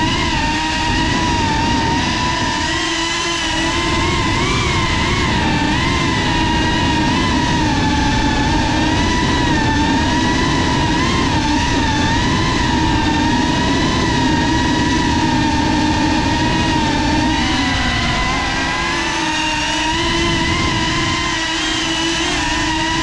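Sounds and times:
drone propellers whining: 0.0 - 23.0.

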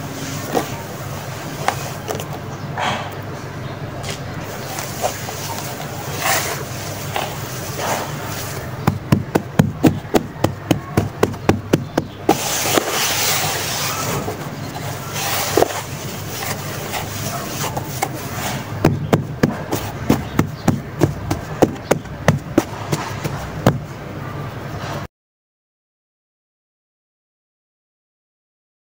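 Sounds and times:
sand scraping and crumbling: 4.0 - 23.8
hands patting damp sand mix: 4.4 - 23.9.

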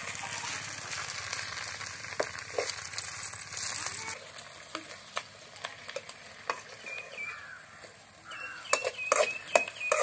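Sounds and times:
greens sizzling in oil: 0.0 - 10.0
metal spoon scraping a pot: 8.5 - 10.0.

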